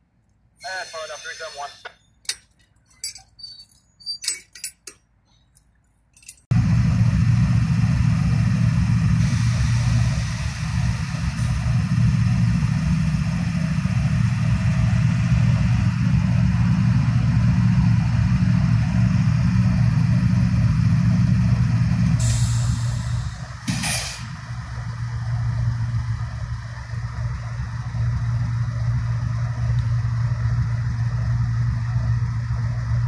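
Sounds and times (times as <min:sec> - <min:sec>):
diesel locomotive engine rumble: 0:00.6 - 0:02.7, 0:06.5 - 0:33.0
burst of hiss: 0:22.2 - 0:24.3.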